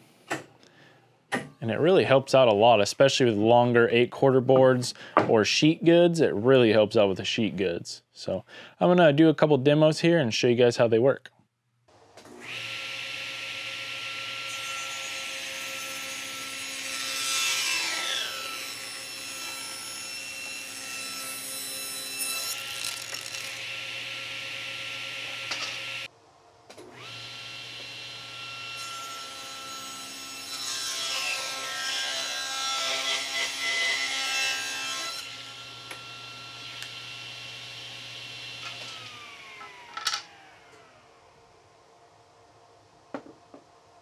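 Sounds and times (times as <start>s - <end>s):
table saw ripping wood: 12.2s - 26.1s, 26.8s - 37.1s, 38.3s - 40.9s.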